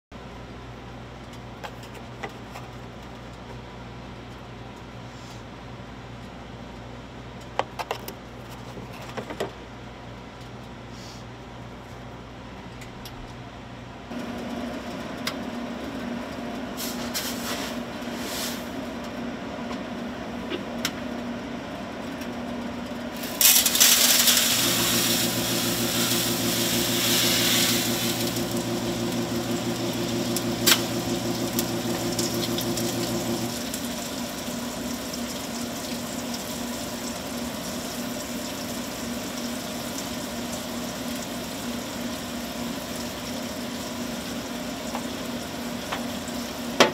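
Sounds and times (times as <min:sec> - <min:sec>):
machinery humming: 0:23.0 - 0:36.2
deep motor hum: 0:24.5 - 0:33.7.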